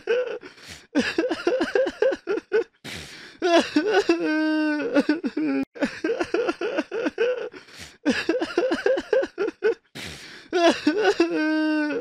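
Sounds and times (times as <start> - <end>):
person sobbing: 0.0 - 12.0
catch of breath: 2.9 - 3.4, 10.0 - 10.5.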